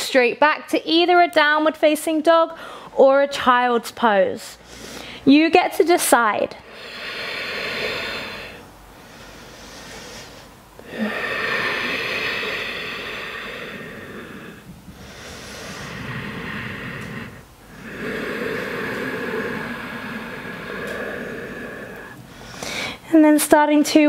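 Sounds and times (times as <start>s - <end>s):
woman breathing deeply: 2.6s - 2.9s, 4.6s - 5.3s, 6.6s - 23.1s.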